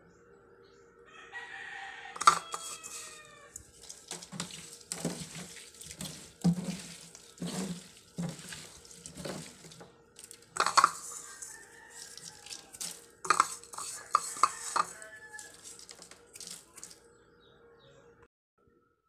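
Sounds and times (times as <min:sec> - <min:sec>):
colander clattering against metal sink: 0:02.2 - 0:17.0
fish swishing in colander: 0:02.2 - 0:17.0.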